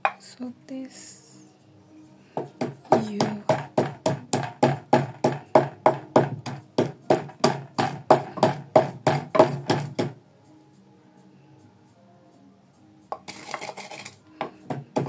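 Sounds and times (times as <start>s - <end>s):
pestle pounding in a mortar: 2.4s - 10.2s, 13.2s - 15.0s.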